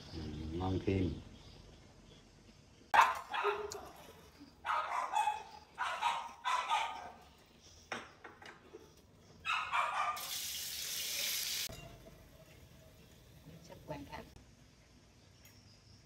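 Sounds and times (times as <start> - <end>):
dog barking: 2.9 - 4.0, 4.6 - 7.3, 9.4 - 10.3.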